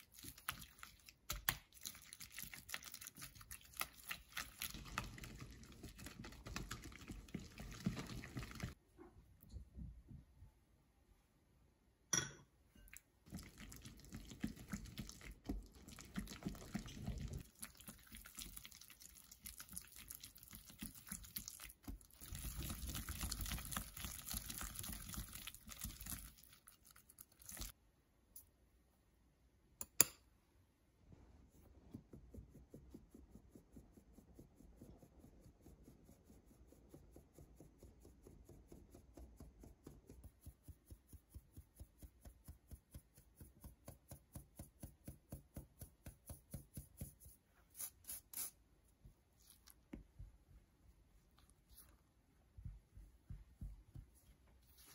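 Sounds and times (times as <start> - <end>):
whisk mixing batter in glass bowl: 0.0 - 8.8, 13.2 - 27.8
flour sifted through metal sieve: 46.5 - 49.6.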